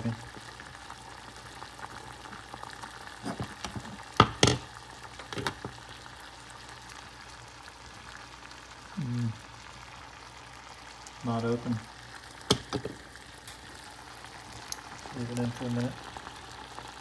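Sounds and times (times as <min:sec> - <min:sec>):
water boiling in saucepan: 0:00.0 - 0:17.0.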